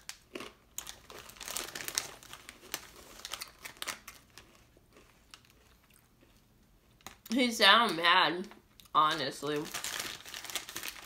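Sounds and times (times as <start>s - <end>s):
chip bag crinkling: 0.0s - 7.4s, 8.8s - 11.0s.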